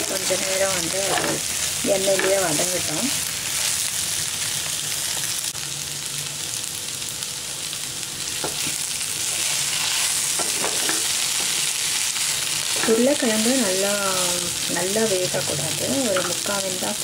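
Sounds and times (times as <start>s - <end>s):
potatoes sizzling in oil: 0.0s - 17.0s
spatula scraping pan: 0.2s - 2.8s, 9.2s - 11.7s.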